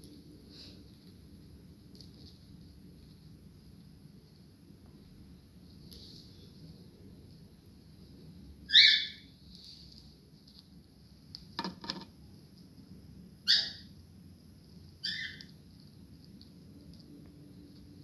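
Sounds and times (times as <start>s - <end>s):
patter of clicks: 1.8s - 3.2s, 15.4s - 18.0s
cockatiel calls: 8.7s - 9.3s, 13.4s - 13.9s, 15.0s - 15.5s.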